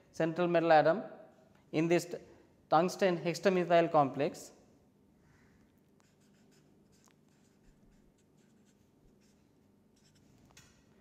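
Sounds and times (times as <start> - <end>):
marker pen writing on paper: 5.9 - 10.7.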